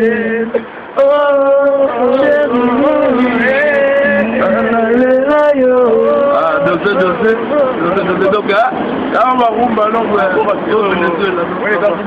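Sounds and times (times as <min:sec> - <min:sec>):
person singing: 0:00.0 - 0:08.2.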